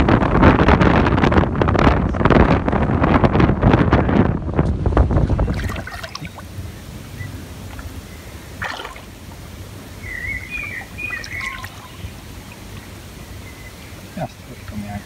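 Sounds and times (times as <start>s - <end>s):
low wind rumble: 0.0s - 15.0s
water splash: 5.2s - 6.6s, 7.7s - 9.4s, 10.5s - 12.9s
water trickling and lapping: 5.2s - 14.8s.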